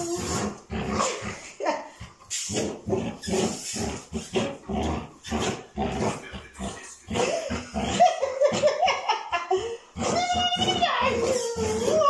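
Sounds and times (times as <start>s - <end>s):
dog growling in play: 0.0s - 8.9s.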